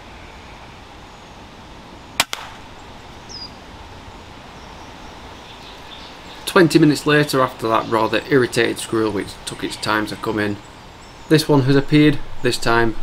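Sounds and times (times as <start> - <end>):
woodland ambience: 0.0 - 13.0
air rifle shot: 2.2 - 2.7
bird chirp: 2.7 - 3.7, 4.5 - 13.0.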